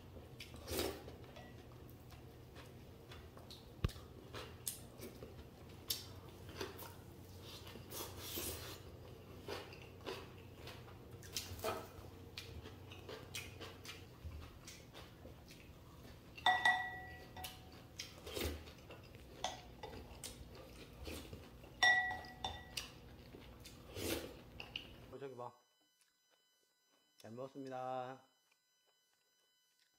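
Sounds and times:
utensil clinking against dish: 16.4 - 17.6, 21.8 - 22.8.

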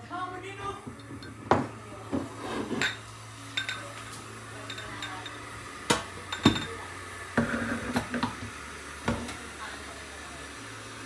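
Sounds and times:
cups and spoons clinking: 1.0 - 4.0, 4.6 - 5.4, 6.3 - 6.8.

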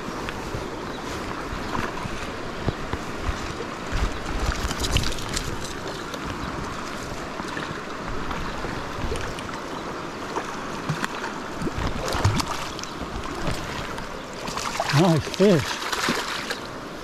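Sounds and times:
stream rushing over its bed: 0.0 - 17.0
short splashes and knocks: 10.3 - 16.6.

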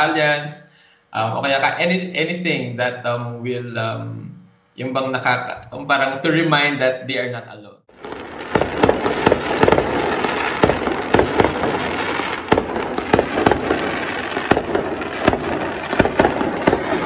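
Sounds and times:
continuous crackle: 7.9 - 17.0
firecrackers banging: 7.9 - 17.0.

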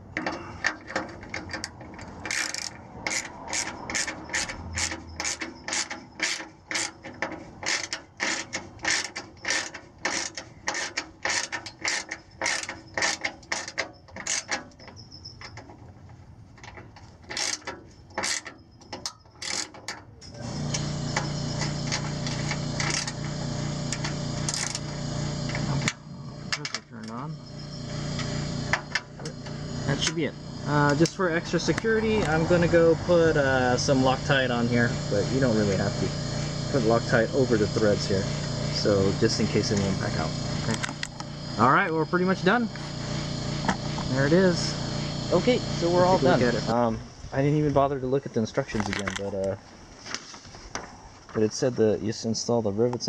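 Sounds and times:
socket ratchet clicking: 0.0 - 15.7, 16.6 - 32.4
steady hum: 20.1 - 48.8.

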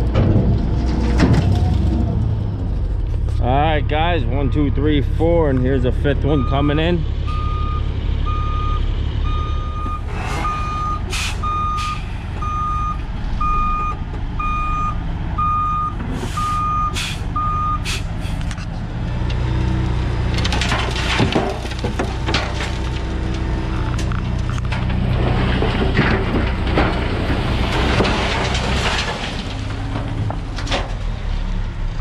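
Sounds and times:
diesel engines running: 0.0 - 32.0
truck backup alarm beeping: 4.2 - 18.0
clattering: 20.3 - 31.0.

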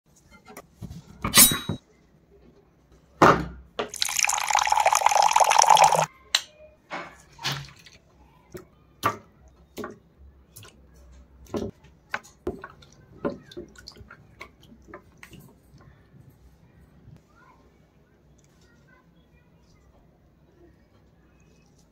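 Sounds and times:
water drips and splashes: 3.9 - 6.1, 12.6 - 15.3
water pouring into glass dish: 3.9 - 6.1.

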